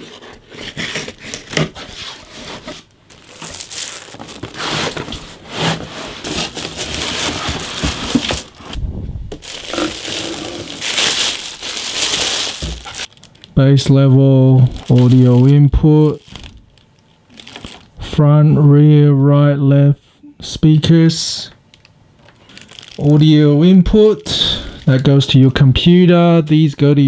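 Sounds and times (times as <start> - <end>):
scissors cutting cardboard: 0.0 - 2.6
cardboard flaps scraping and rustling: 0.0 - 8.8, 9.4 - 13.1
plastic bag crinkling: 3.1 - 18.0, 22.2 - 23.5.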